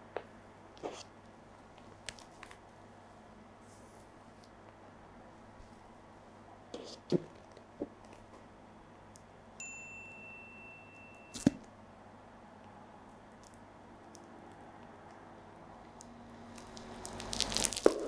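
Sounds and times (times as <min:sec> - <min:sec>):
short high chime: 0:09.6 - 0:11.6.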